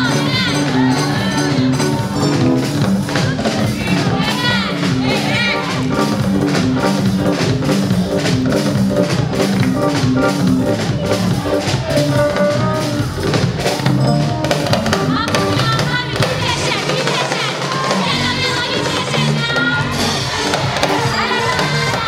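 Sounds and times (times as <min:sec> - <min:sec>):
choir singing: 0:00.0 - 0:06.2, 0:15.2 - 0:22.0
drum kit beat: 0:00.0 - 0:22.0.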